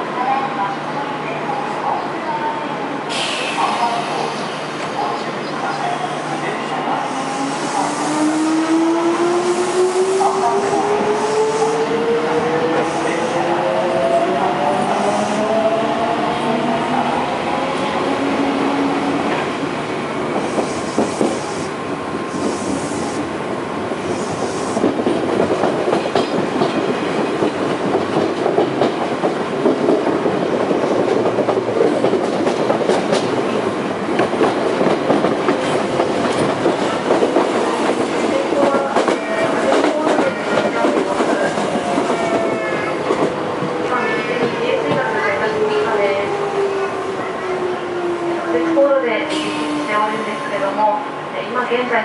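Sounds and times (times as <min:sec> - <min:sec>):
train rolling noise: 0:01.5 - 0:52.0
rail-joint clickety-clack: 0:24.8 - 0:33.5, 0:34.1 - 0:45.9.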